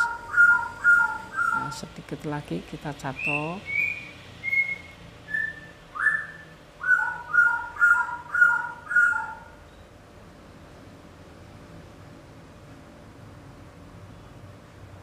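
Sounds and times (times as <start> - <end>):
whistled notes: 3.2 - 7.6.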